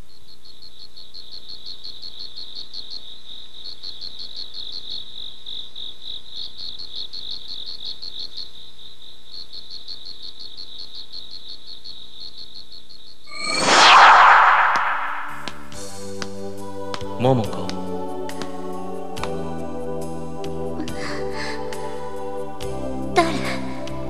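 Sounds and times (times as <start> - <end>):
crickets chirping: 0.0 - 13.9.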